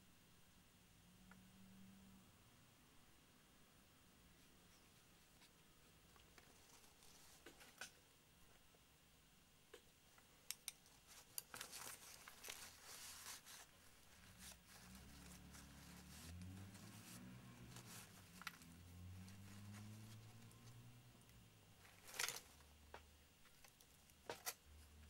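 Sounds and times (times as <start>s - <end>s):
tissue paper crinkling: 11.1s - 20.7s.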